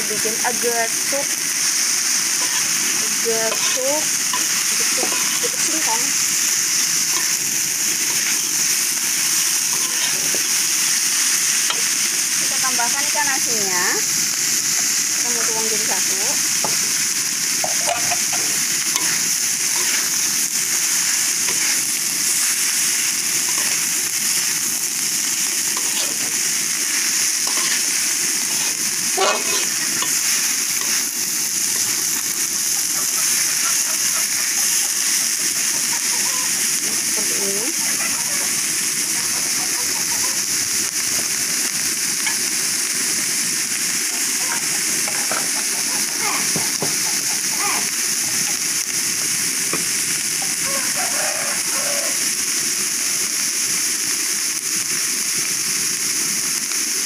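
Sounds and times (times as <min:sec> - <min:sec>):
food sizzling in a wok: 0:00.0 - 0:57.0
metal spatula scraping: 0:02.1 - 0:12.8, 0:17.6 - 0:24.6, 0:25.5 - 0:31.2.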